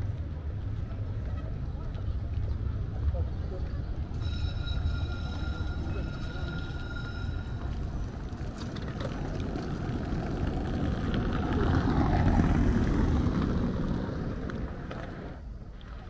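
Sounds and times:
car tyres on cobblestones: 0.0 - 16.0.

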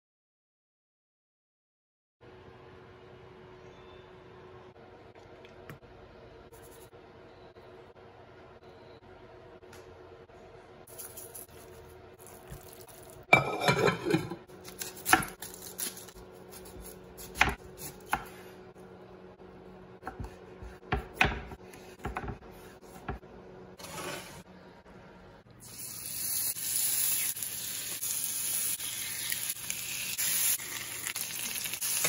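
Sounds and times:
knife chopping on wooden board: 20.0 - 22.4.

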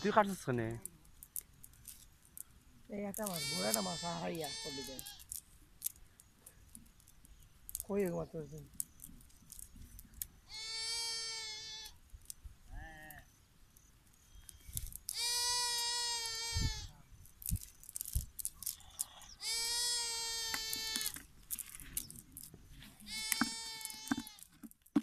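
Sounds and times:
cast net rustling and clicking: 0.0 - 10.4, 14.1 - 16.0, 17.1 - 25.0
goat bleating: 3.2 - 5.3, 10.5 - 12.0, 15.1 - 16.9, 19.4 - 21.2, 23.0 - 24.4.

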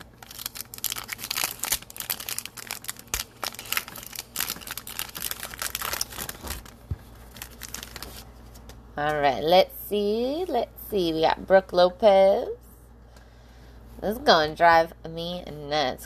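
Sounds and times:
foil wrapper crinkling and tearing: 0.0 - 8.3.

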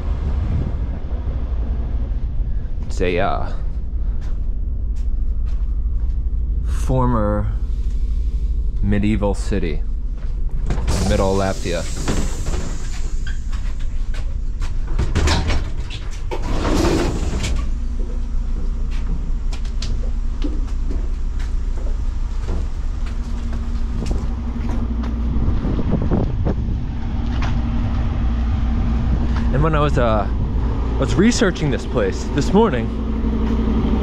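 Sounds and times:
steady hum: 0.0 - 34.0
train engine rumble: 0.0 - 34.0
passengers stepping off: 10.0 - 14.9.

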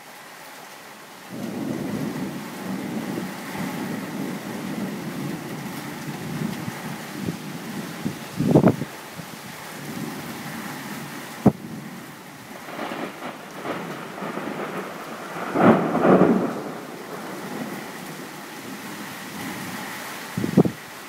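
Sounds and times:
thunder rumbling: 1.3 - 8.9, 9.8 - 19.8.

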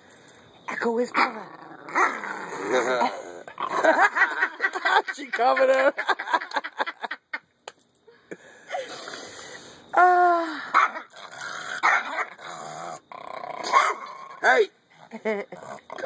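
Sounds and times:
puppy growling: 1.2 - 4.1, 11.0 - 14.4, 15.5 - 16.0.

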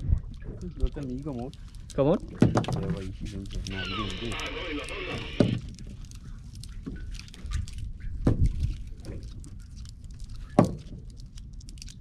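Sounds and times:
wind and water rumble: 0.0 - 12.0.

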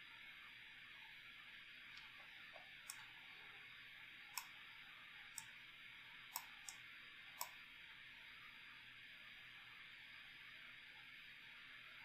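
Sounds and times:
faint room noise hiss: 0.0 - 12.0
computer mouse clicks: 1.9 - 3.1, 4.3 - 4.6, 5.3 - 5.6, 6.3 - 6.8, 7.4 - 7.6.

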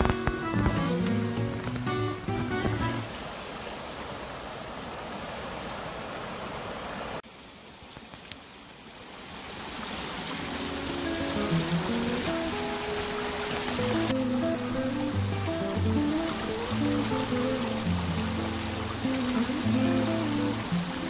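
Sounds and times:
background music: 0.0 - 3.1, 10.4 - 21.0
creek splashing over stones: 0.0 - 21.0.

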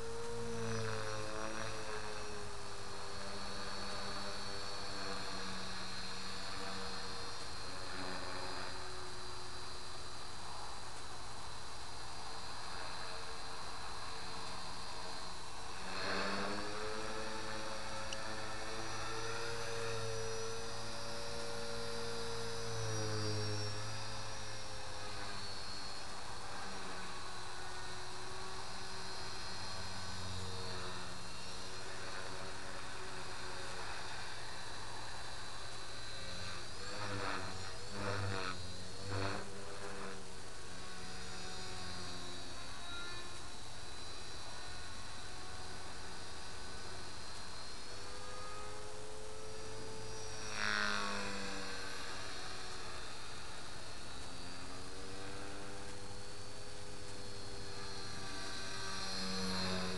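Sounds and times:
model helicopter rotor and motor hum: 0.0 - 59.9.

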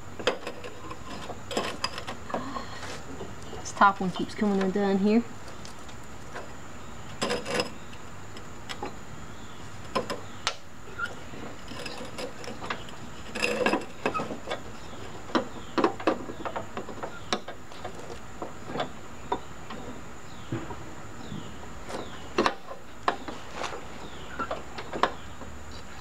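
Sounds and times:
belt clicking on metal pulleys: 11.0 - 14.7.

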